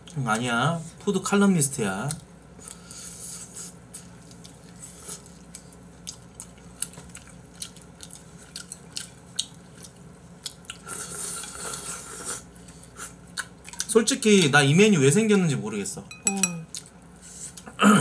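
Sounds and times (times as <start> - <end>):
wet chewing: 2.0 - 14.6, 16.6 - 17.7
slurping noodles: 10.8 - 13.1
chopsticks clicking on bowl: 16.1 - 16.8.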